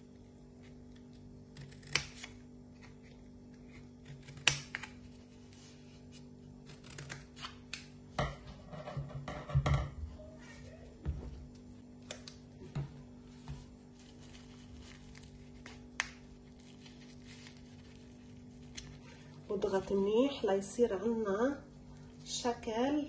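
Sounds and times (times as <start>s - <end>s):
scissors snipping cardboard: 4.0s - 5.0s.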